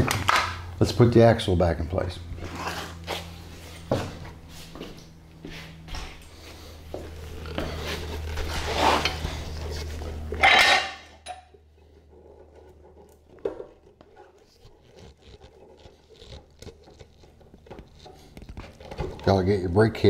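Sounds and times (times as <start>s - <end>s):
metal scraping and rubbing: 2.3s - 4.6s, 7.1s - 19.4s.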